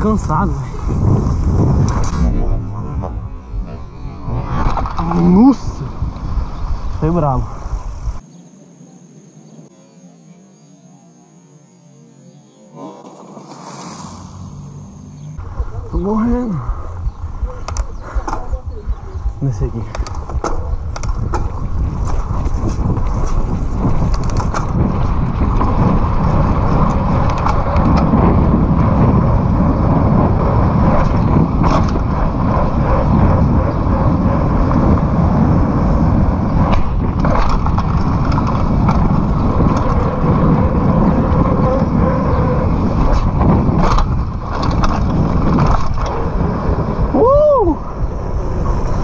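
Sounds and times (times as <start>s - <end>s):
wind rushing over microphone: 0.0s - 8.2s, 13.2s - 49.0s
bike clicks and rattles: 15.4s - 47.1s
tyres on pavement: 15.4s - 49.0s.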